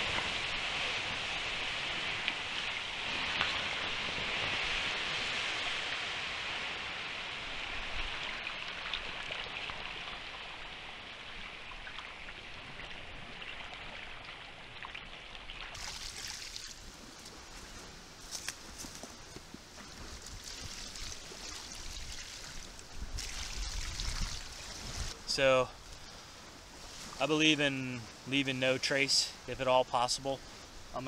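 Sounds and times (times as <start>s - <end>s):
water splashing: 8.0s - 18.5s, 19.7s - 25.2s.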